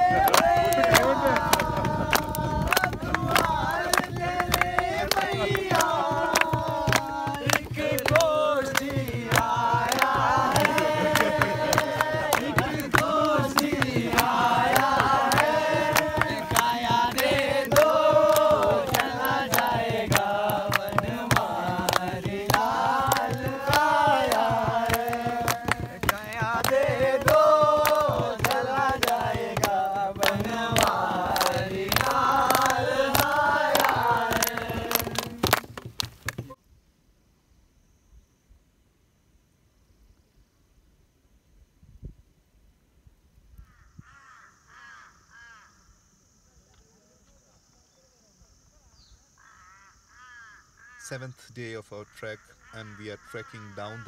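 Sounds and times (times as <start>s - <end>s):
rhythmic hand clapping: 0.0s - 36.6s
voices singing folk song: 0.0s - 36.6s.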